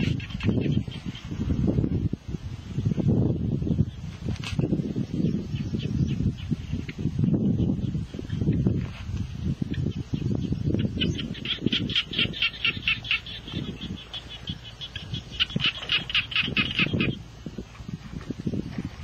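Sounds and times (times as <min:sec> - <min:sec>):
rapid high chattering calls: 0:00.0 - 0:01.4, 0:09.7 - 0:17.2.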